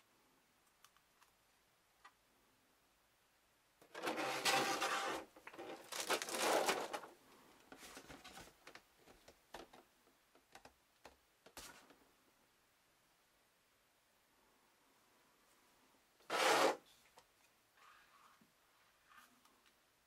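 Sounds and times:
plastic blister tray crinkling: 0:03.8 - 0:09.8
plastic rustles and taps: 0:05.4 - 0:12.0.

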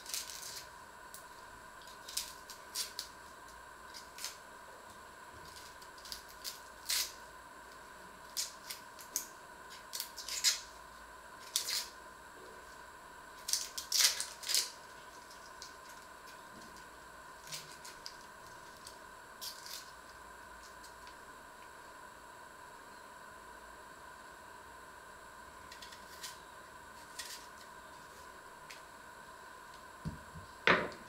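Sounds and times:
onion skin crackling: 0:00.0 - 0:04.4, 0:05.4 - 0:07.2, 0:08.2 - 0:10.7, 0:13.4 - 0:21.1
faint high hum: 0:00.0 - 0:31.0.

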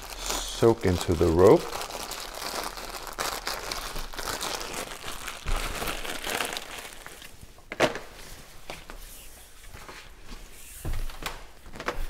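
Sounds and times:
plastic bag crinkling: 0:00.0 - 0:08.2.

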